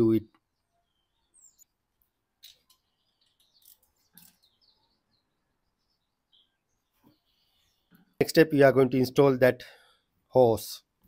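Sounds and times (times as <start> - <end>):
faint bird chirps: 0.0 - 8.3.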